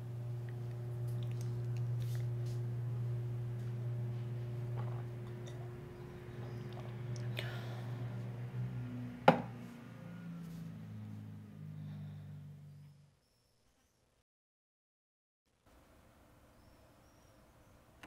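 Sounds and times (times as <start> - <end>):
low hum: 0.0 - 13.2
glass knocking on wooden table: 9.3 - 9.5.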